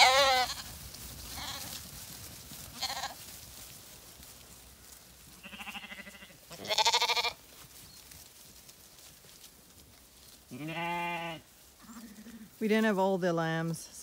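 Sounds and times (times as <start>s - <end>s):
lambs bleating: 0.0s - 1.8s, 2.7s - 3.2s, 5.4s - 7.4s, 10.5s - 12.5s.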